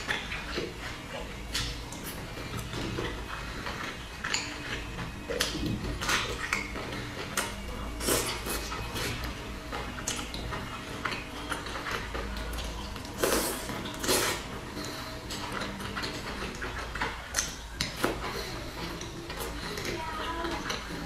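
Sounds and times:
dumplings bitten and chewed: 0.0s - 19.8s.

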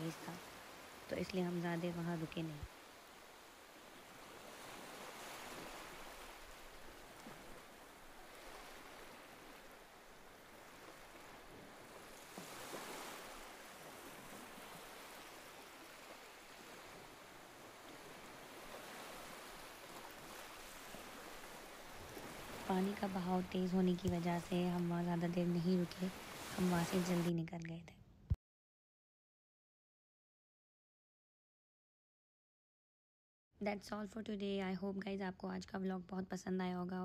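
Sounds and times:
waves breaking on shore: 0.0s - 27.3s.

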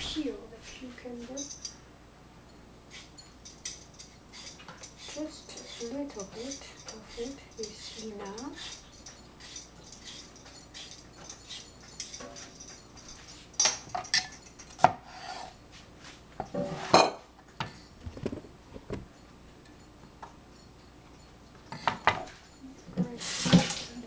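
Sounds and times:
metal utensils knocking and clinking: 4.8s - 14.9s.

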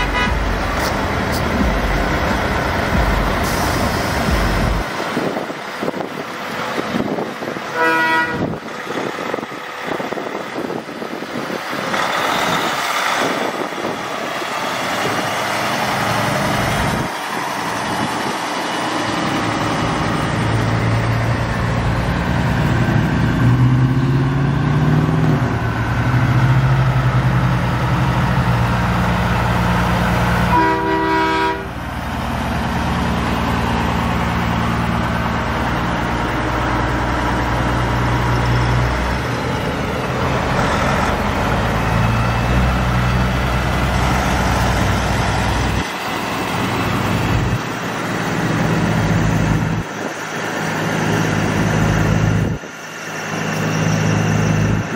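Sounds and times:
truck horn blast: 0.0s - 0.9s, 7.6s - 8.6s, 30.5s - 31.8s
diesel truck engines: 0.0s - 54.9s.

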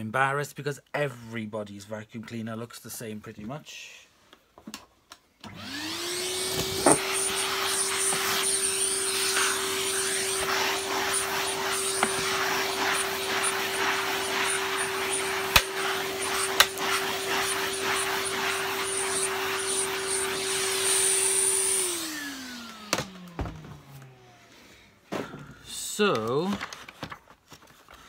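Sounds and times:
vacuum cleaner motor whining: 5.4s - 24.8s.

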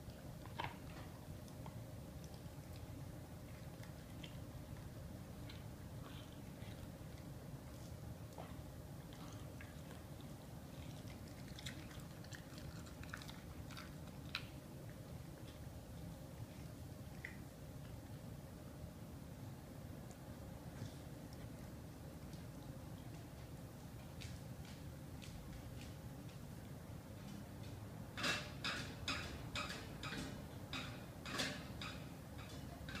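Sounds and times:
dog chewing meat: 0.0s - 18.2s
dog chewing meat crunchily: 9.0s - 15.6s.

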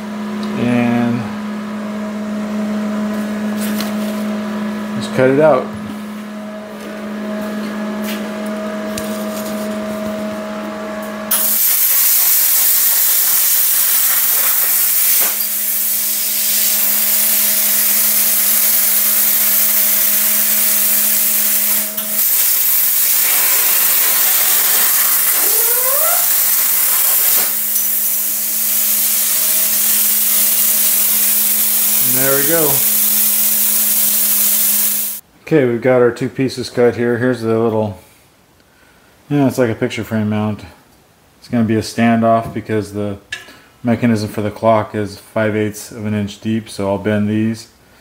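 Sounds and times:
steady hum: 0.0s - 35.3s
plasma cutter arc hissing: 11.3s - 35.2s
short rising whines: 16.8s - 31.0s.

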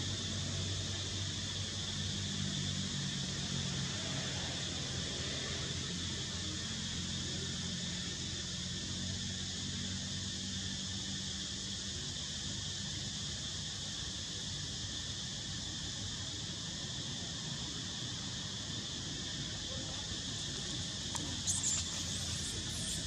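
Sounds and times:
high insect chorus: 0.0s - 23.0s
baby monkey squealing: 21.2s - 23.0s.

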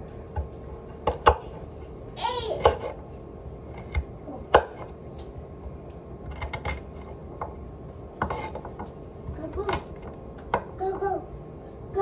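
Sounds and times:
knife chopping on wooden board: 0.3s - 1.6s, 2.6s - 3.0s, 3.7s - 5.0s, 8.2s - 10.7s.

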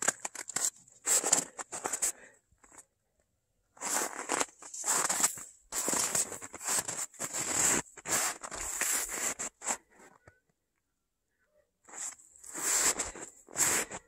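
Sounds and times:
footsteps crunching in snow: 0.0s - 2.2s, 3.8s - 10.1s, 11.9s - 14.0s.

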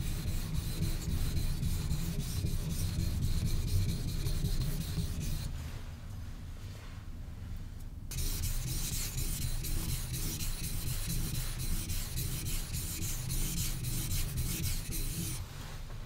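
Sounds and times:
blade scraping on wet whetstone: 8.1s - 15.4s.

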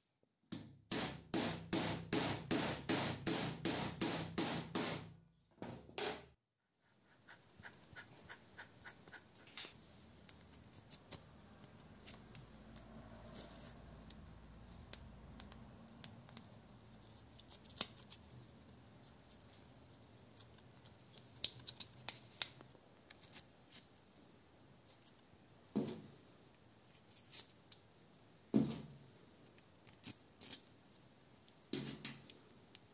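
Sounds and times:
small metallic clicks and scrapes: 8.6s - 24.0s, 26.9s - 27.8s, 29.0s - 31.6s.

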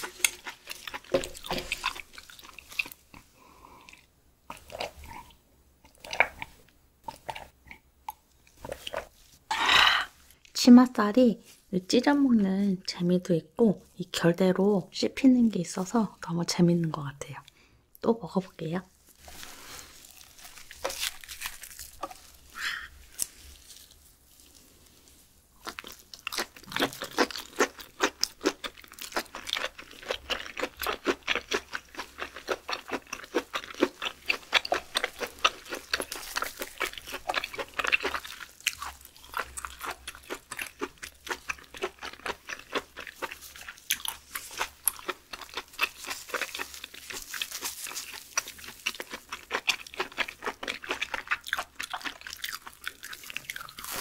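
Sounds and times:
close chewing clicks and smacks: 48.0s - 53.8s.

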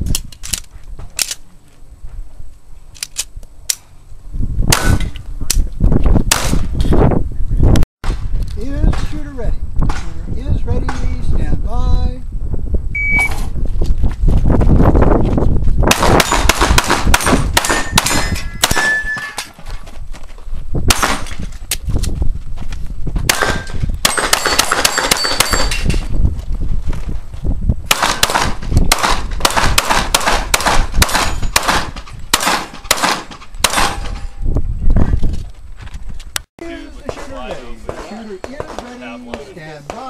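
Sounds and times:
pistol shots: 6.3s - 6.6s, 15.9s - 19.0s, 20.9s - 21.3s, 23.3s - 25.8s, 27.9s - 34.2s
steel plate target clanging: 17.2s - 19.6s, 23.5s - 26.0s.

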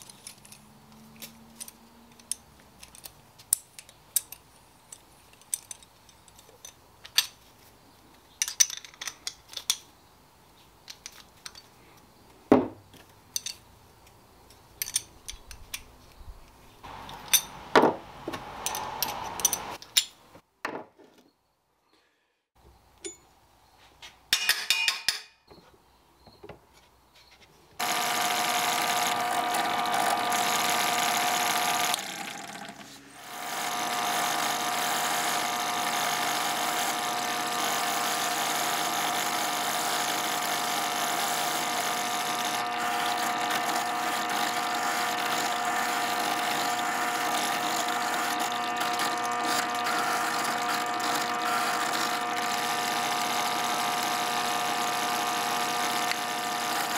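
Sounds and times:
drill press motor humming: 16.9s - 17.7s, 27.8s - 56.9s
light metal clinks: 23.0s - 23.3s.

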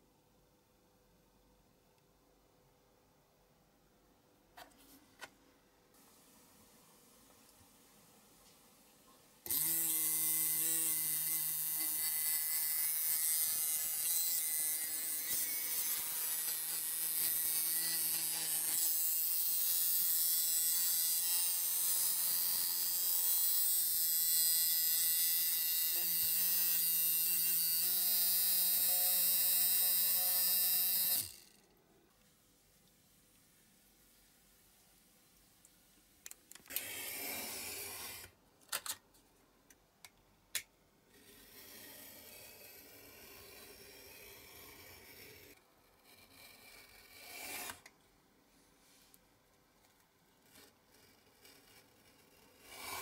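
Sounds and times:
small electric motor buzzing: 9.4s - 31.6s, 41.3s - 47.8s.

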